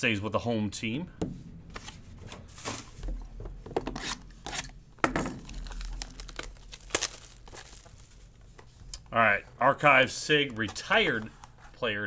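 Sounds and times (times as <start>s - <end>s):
plastic wrap crinkling and ripping: 5.3s - 9.1s.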